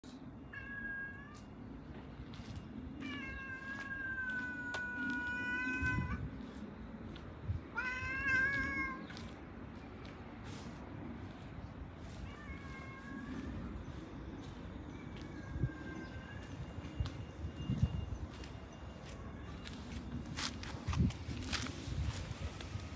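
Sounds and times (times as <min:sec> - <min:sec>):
cat meowing: 0:00.5 - 0:01.5, 0:03.0 - 0:06.3, 0:07.7 - 0:09.1, 0:12.1 - 0:13.8.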